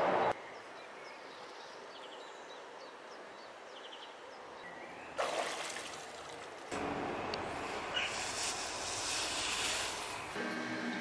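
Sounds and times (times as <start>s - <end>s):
water splashing in tub: 5.2s - 6.5s
small birds chirping: 7.8s - 8.4s.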